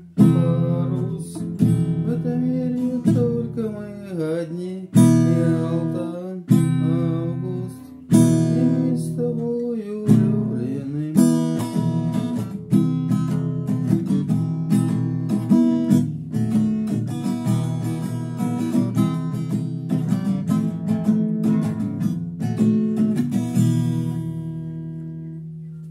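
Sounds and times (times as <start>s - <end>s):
acoustic guitar strumming: 0.0s - 25.9s.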